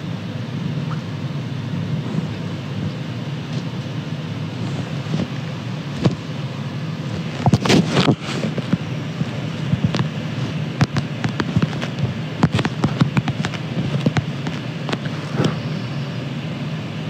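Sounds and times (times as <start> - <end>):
phone rustling and knocking: 10.8 - 15.1.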